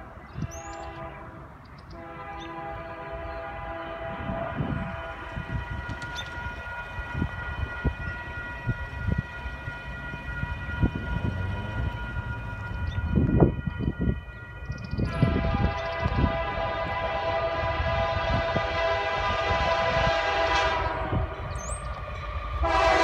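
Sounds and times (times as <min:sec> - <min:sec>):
distant locomotive horn: 0:00.0 - 0:23.0
wind buffeting microphone: 0:00.0 - 0:23.0.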